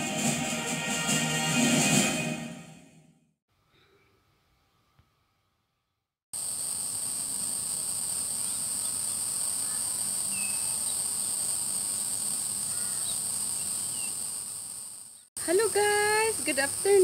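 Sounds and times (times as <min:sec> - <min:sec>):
insect chorus shrilling: 0:06.4 - 0:15.3
faint bird chirps: 0:08.4 - 0:11.0, 0:12.7 - 0:14.2.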